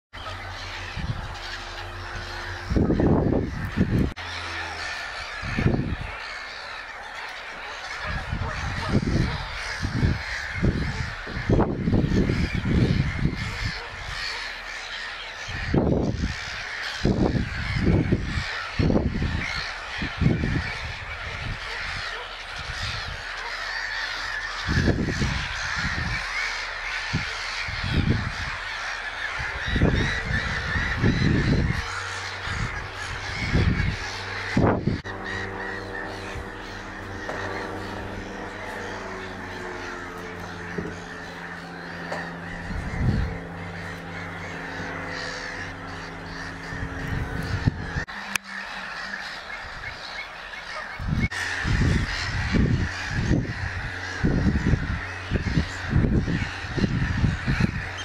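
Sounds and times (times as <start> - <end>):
high bird chatter: 0.1 - 58.0
low bird calls: 0.1 - 58.0.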